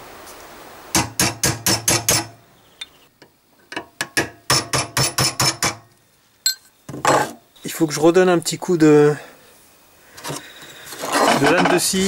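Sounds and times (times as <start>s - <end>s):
hammer striking chisel on metal: 1.0s - 2.3s, 3.8s - 5.9s.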